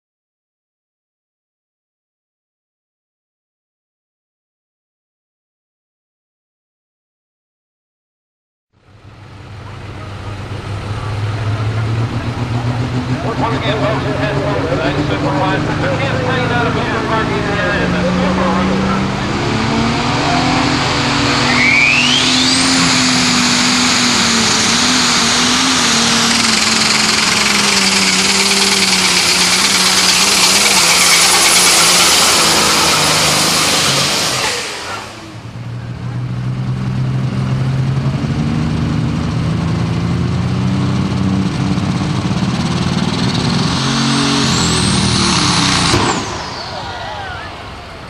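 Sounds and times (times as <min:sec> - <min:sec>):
pulling tractor engine at full throttle: 0:08.8 - 0:48.0
second tractor at lower revs: 0:08.8 - 0:48.0
turbo whine: 0:09.7 - 0:36.2.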